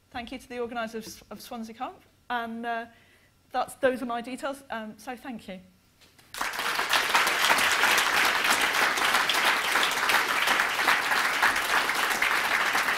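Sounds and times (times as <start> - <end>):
audience applauding: 6.3 - 12.9.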